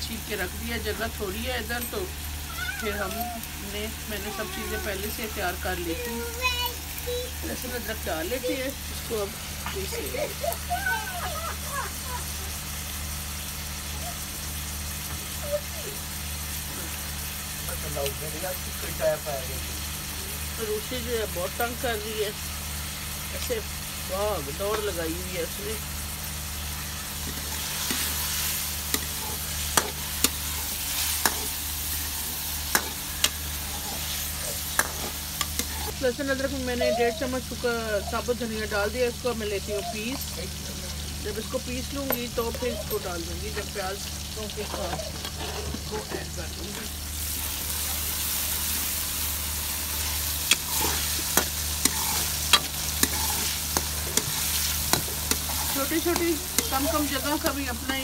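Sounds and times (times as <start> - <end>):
onions sizzling in oil: 0.0 - 58.0
spoon scraping metal pan: 27.3 - 35.9, 49.9 - 57.8.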